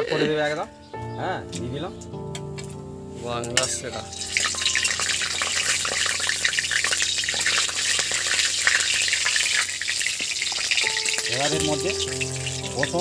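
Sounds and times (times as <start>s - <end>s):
spices sizzling in hot oil: 3.6s - 13.0s.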